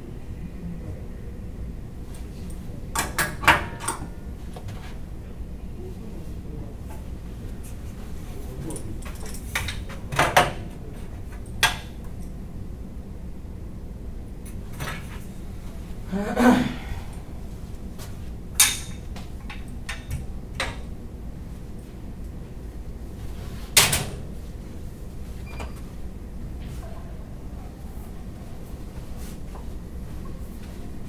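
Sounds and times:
low background hum: 0.0s - 31.0s.

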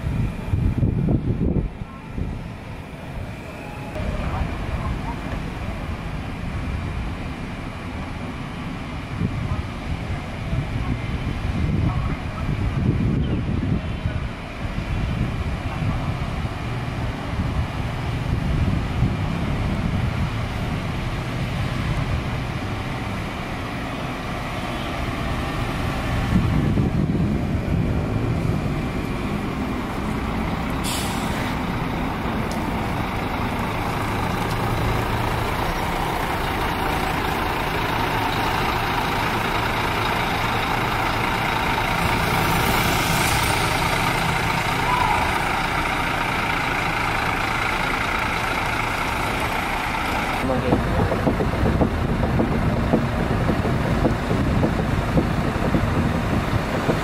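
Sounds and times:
coach diesel engine running: 0.0s - 57.0s
air hiss: 30.8s - 31.7s.

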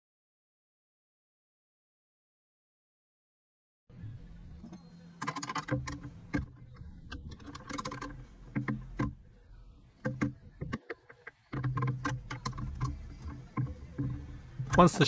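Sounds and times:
low steady hum: 3.9s - 15.0s.

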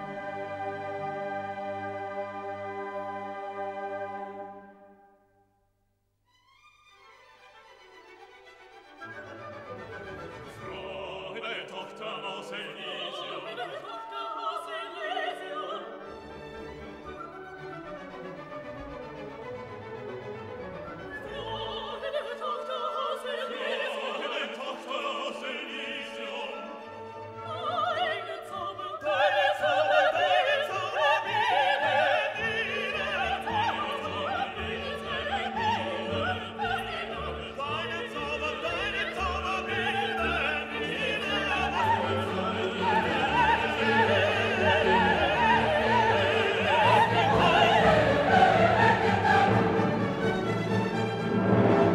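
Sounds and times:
orchestra playing: 0.0s - 5.1s, 6.7s - 13.8s, 15.5s - 22.2s, 30.0s - 51.9s
operatic singing: 10.0s - 16.7s, 20.9s - 51.9s.

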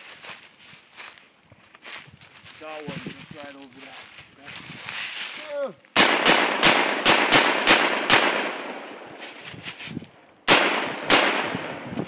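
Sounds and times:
rifle shots: 6.0s - 9.2s, 10.5s - 11.8s.

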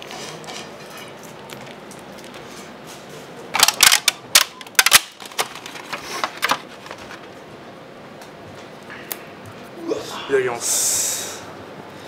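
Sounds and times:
plastic containers clicking and snapping: 3.6s - 7.0s.

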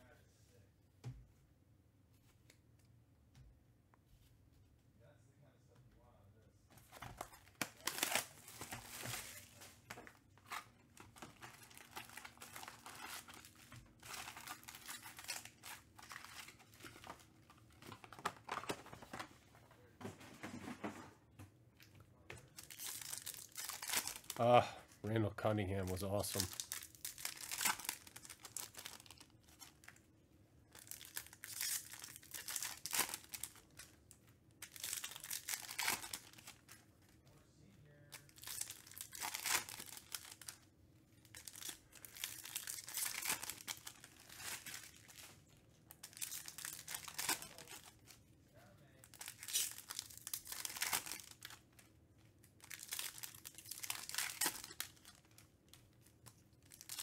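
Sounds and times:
card wrappers crinkling: 6.8s - 19.2s, 22.4s - 24.6s, 25.6s - 30.1s, 30.7s - 37.2s, 38.1s - 40.6s, 41.2s - 48.2s, 49.0s - 57.0s.

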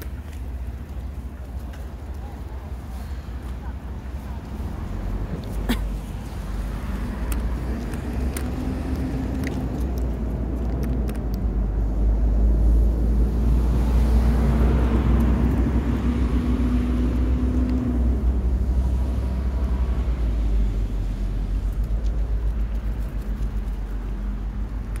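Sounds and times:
car driving past: 11.9s - 21.4s.

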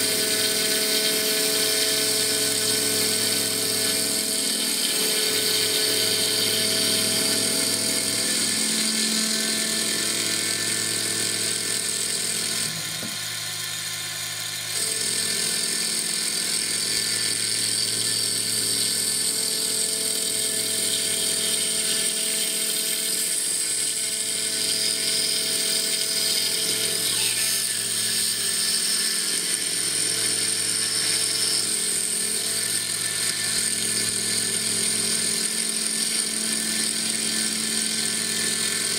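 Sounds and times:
hissy wood cutting noise: 0.0s - 13.5s
milling machine whine: 0.0s - 38.9s.

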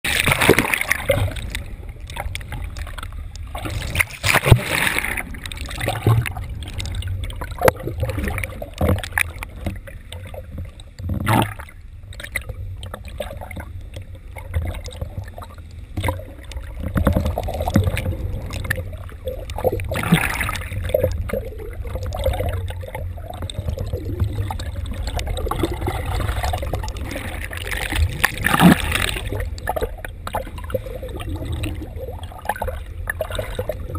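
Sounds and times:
churning water surges: 0.0s - 33.9s
knocks and splashes: 0.0s - 33.9s
water sloshing underwater: 0.0s - 33.9s.

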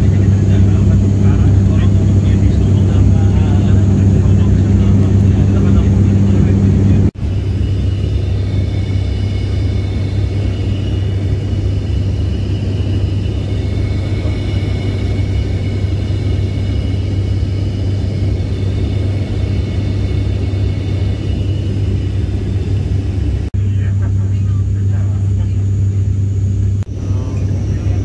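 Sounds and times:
faint high whine: 0.0s - 28.0s
propeller airliner cabin drone: 0.0s - 28.0s.

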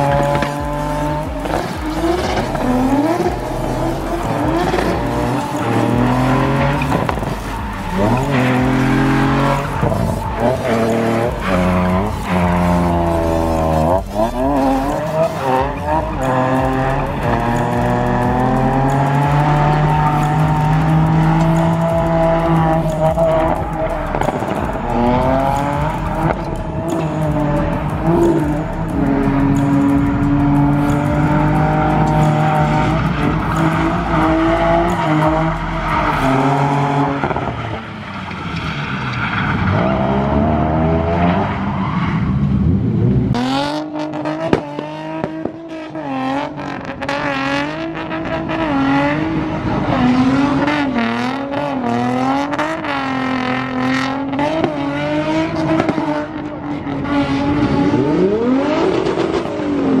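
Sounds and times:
second car engine revving: 0.0s - 37.6s
car engine at high revs: 0.0s - 60.0s.

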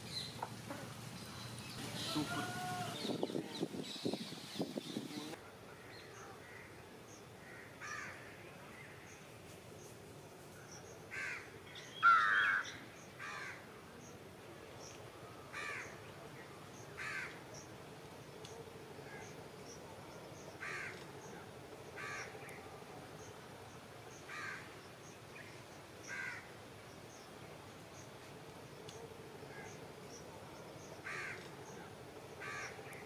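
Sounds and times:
crow cawing: 7.4s - 8.2s, 11.1s - 13.6s, 15.5s - 15.9s, 17.0s - 17.4s, 20.6s - 21.0s, 22.0s - 22.3s, 24.3s - 24.7s, 26.1s - 26.5s, 31.0s - 31.4s, 32.4s - 32.8s.

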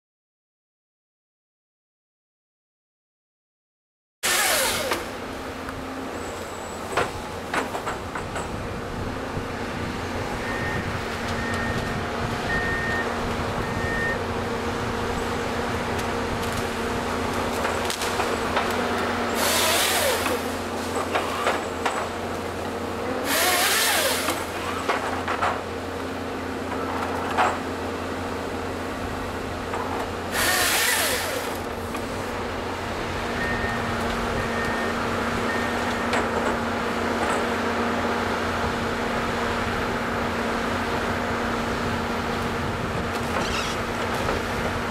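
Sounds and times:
chainsaw crosscutting logs: 4.2s - 5.8s, 15.6s - 25.9s, 29.7s - 32.4s
excavator diesel engine running: 4.3s - 44.9s.

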